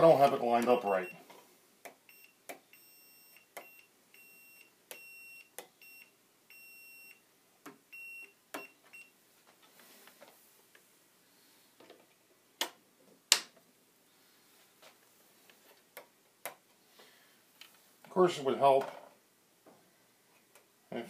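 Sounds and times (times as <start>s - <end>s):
multimeter beeping: 0.6s - 1.2s, 2.0s - 7.2s, 7.9s - 9.1s.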